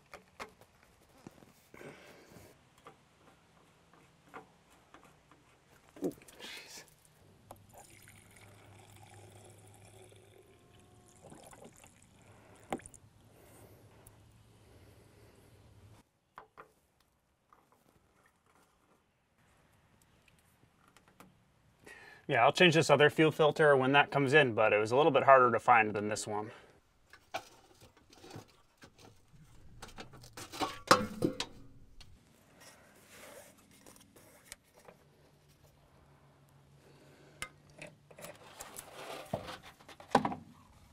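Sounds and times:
fuel trickling into filter: 7.5s - 13.1s
metal clatter: 27.1s - 32.2s
air cleaner housing clicks and knocks: 29.8s - 32.2s.

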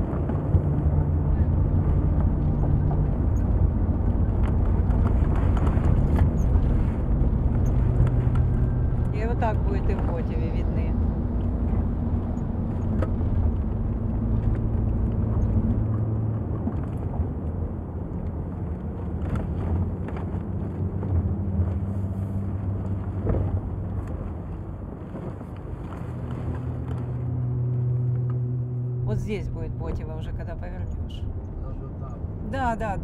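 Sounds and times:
car engine hum: 0.0s - 33.0s
road noise: 0.0s - 33.0s.

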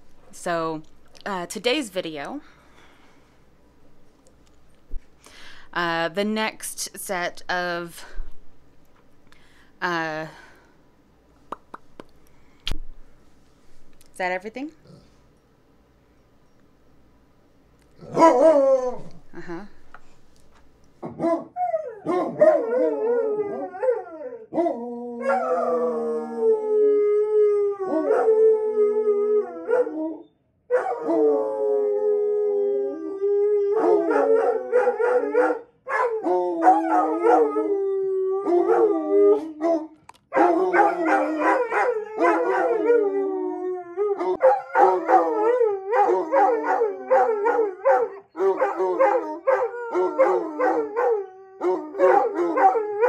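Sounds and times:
dog howling: 18.0s - 19.2s, 21.2s - 53.0s.

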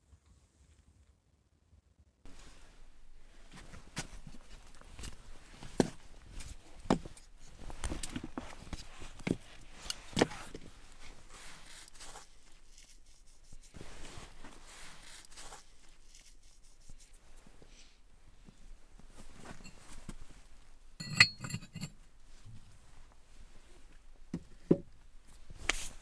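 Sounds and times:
logs scraping and rustling: 2.3s - 16.6s.

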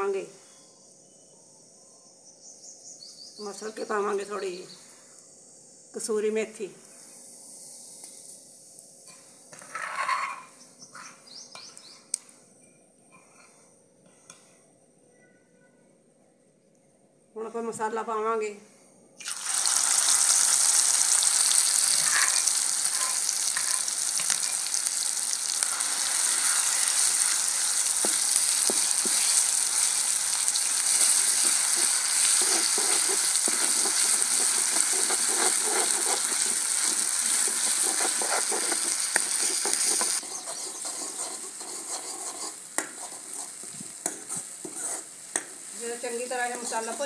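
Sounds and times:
spices sizzling in hot oil: 19.2s - 47.0s
ladle scraping a pan: 30.9s - 45.1s.

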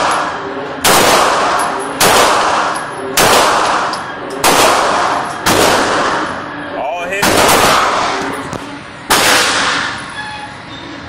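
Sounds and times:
pistol shots echoing indoors: 0.0s - 6.4s, 7.2s - 8.2s, 9.1s - 10.0s.

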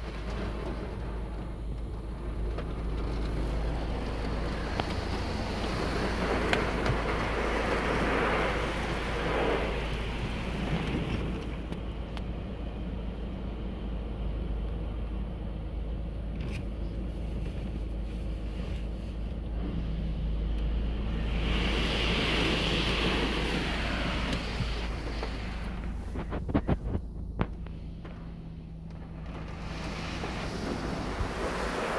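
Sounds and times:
car wash water spray hiss: 0.0s - 12.0s, 17.0s - 31.9s
constant low hum: 0.0s - 31.9s.

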